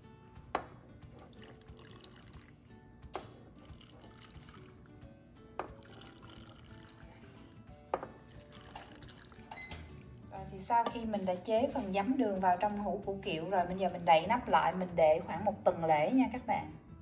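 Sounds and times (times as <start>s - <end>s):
background music with sharp hits: 0.0s - 1.2s, 1.8s - 3.8s
brine trickling into a glass jar: 1.2s - 2.7s, 3.6s - 5.0s, 5.7s - 7.4s, 8.2s - 9.6s.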